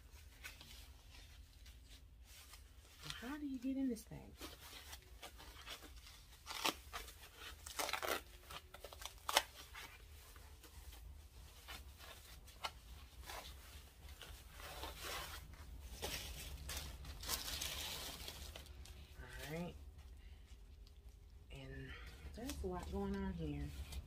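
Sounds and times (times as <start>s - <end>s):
paper packaging rustling: 0.0s - 19.6s
paper ripping: 4.4s - 10.2s.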